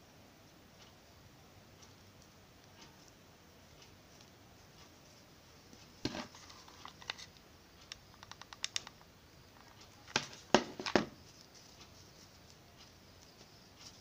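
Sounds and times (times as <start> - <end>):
rustling: 1.7 - 14.0.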